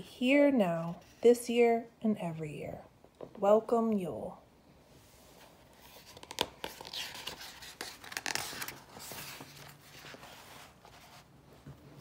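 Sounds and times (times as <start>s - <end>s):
book pages turning: 5.4s - 12.0s.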